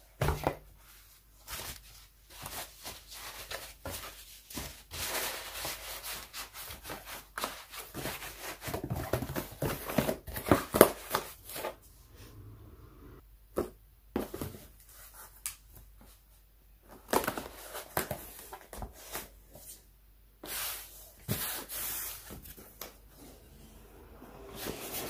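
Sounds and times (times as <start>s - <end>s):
cardboard rustling and crinkling: 0.3s - 11.8s.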